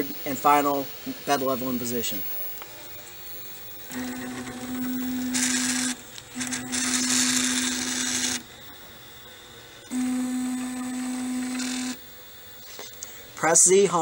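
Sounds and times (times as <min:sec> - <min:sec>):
loud hiss: 0:00.0 - 0:03.8
stepper motors whining: 0:00.0 - 0:13.0.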